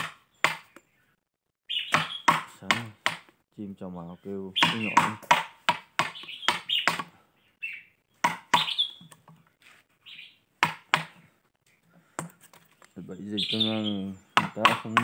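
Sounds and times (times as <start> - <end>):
bird chirping: 0.2 - 3.0, 3.8 - 5.2, 6.0 - 9.3, 9.9 - 10.5, 11.1 - 15.0
mallet striking chisel: 4.6 - 7.1, 14.4 - 15.0.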